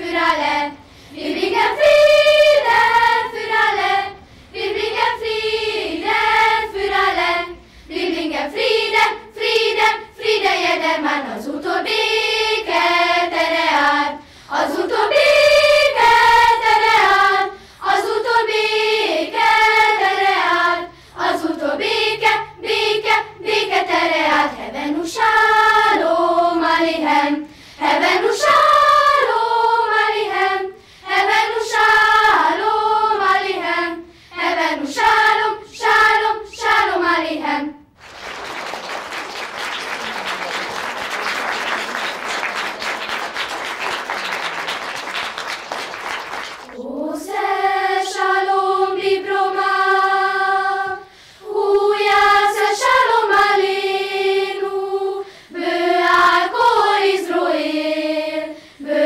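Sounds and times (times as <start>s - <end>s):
children's choir singing: 0.0s - 59.0s
audience applause: 38.0s - 46.8s.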